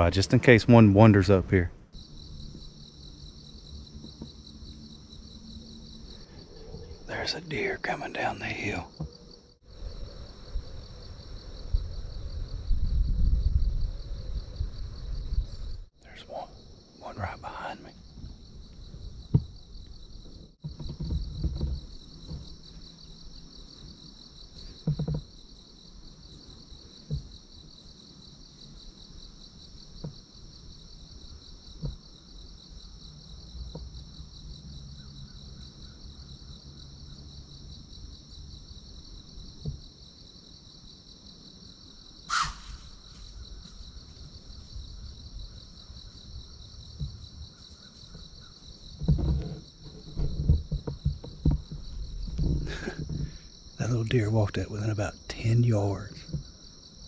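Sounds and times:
insects shrilling: 0:42.1 - 0:44.8.

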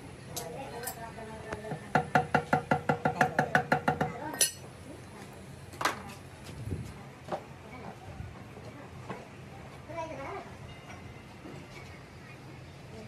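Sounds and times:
steel rod tapping on metal: 0:02.0 - 0:04.6.

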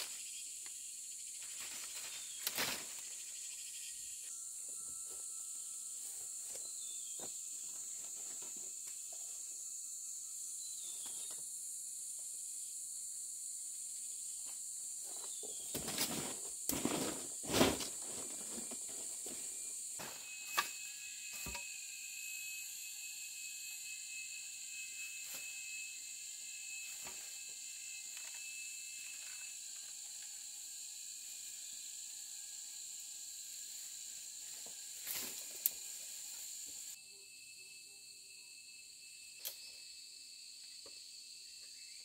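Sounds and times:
high-pitched insect chorus: 0:00.0 - 0:42.0.

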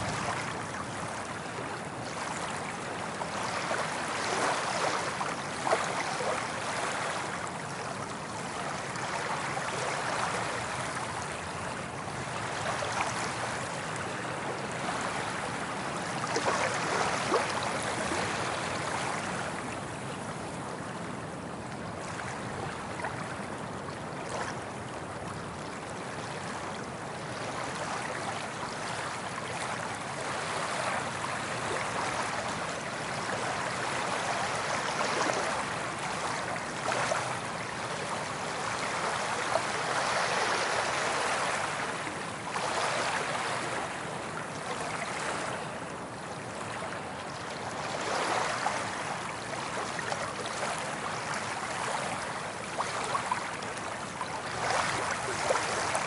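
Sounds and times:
ocean waves breaking: 0:00.0 - 0:07.4, 0:29.6 - 0:46.9, 0:47.6 - 0:56.0.

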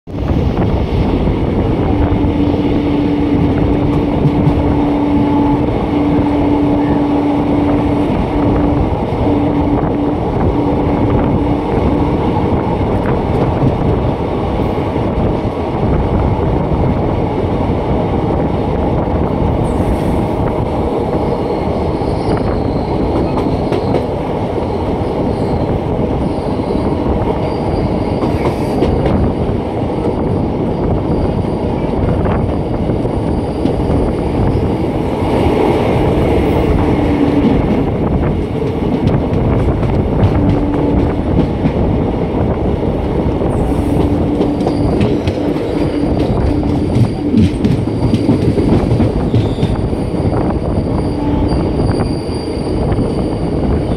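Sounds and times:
train wheels rumbling on rails: 0:00.0 - 0:53.9
clickety-clack over rail joints: 0:03.3 - 0:09.2, 0:10.3 - 0:16.2, 0:22.1 - 0:24.5, 0:25.2 - 0:52.1.

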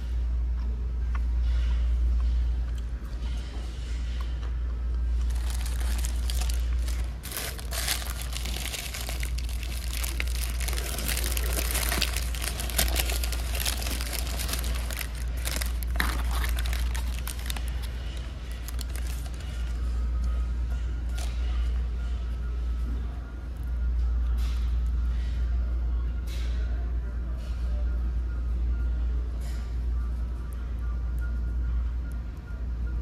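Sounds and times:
steady low hum: 0:00.0 - 0:33.0
paper wrapper crinkling: 0:05.2 - 0:19.9.

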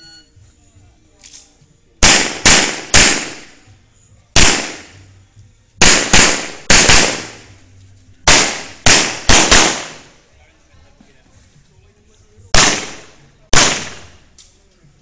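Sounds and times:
handgun shots: 0:02.0 - 0:03.6, 0:04.4 - 0:05.0, 0:05.8 - 0:07.6, 0:08.3 - 0:10.1, 0:12.6 - 0:14.2.

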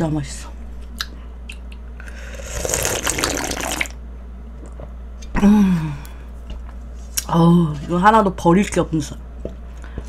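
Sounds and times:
person slurping broth: 0:02.1 - 0:03.9
person sighing: 0:05.4 - 0:06.3.

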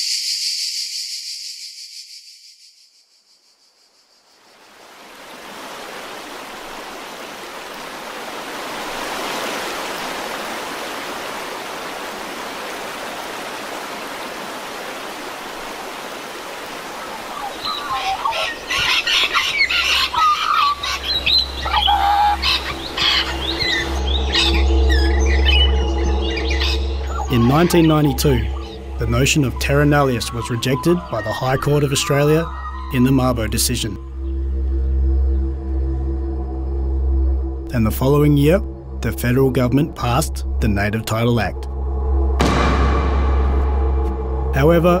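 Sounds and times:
birds chirping: 0:00.0 - 0:41.7
low steady drone: 0:21.3 - 0:45.0.

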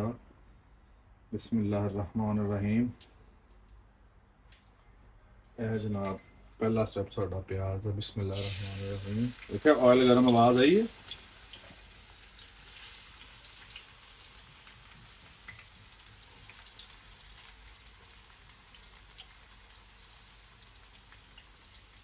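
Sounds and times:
onion sizzling in hot oil: 0:08.3 - 0:22.0
oil crackling and popping: 0:08.4 - 0:22.0.

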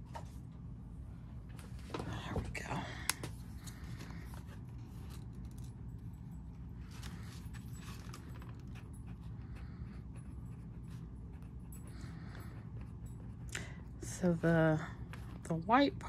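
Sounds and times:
paper rustling: 0:06.8 - 0:08.8.

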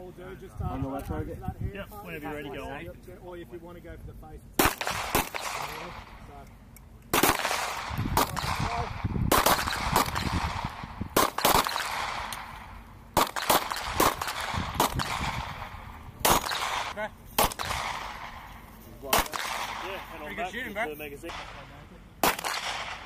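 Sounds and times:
pistol shots with echo: 0:04.6 - 0:06.2, 0:07.1 - 0:18.5, 0:19.1 - 0:20.2, 0:21.3 - 0:23.0.

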